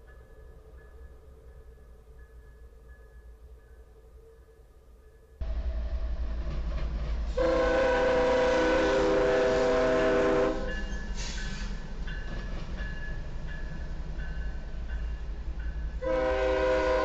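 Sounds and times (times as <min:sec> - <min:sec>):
train rumbling past: 0:00.0 - 0:17.0
train hiss: 0:07.2 - 0:12.3
locomotive air horn: 0:07.4 - 0:11.4, 0:16.0 - 0:17.0.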